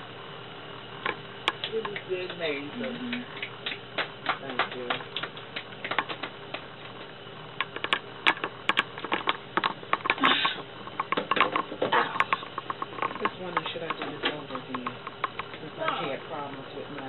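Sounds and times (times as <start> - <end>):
people clapping: 1.6 - 6.7.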